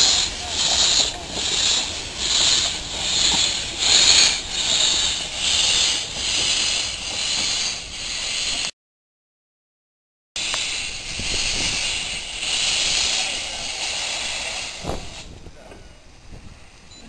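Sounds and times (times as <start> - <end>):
steam locomotive chuffing: 0.0 - 8.7, 10.4 - 17.0.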